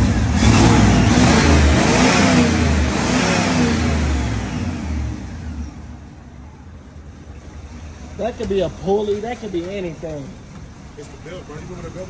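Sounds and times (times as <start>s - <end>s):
car engine revving: 0.0s - 6.2s
engine belt whine: 0.0s - 6.4s.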